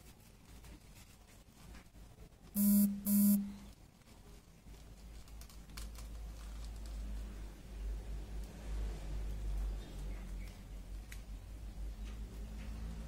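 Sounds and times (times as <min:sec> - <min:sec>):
short buzzing beeps: 0:02.6 - 0:03.7
paper rustling: 0:03.9 - 0:07.2.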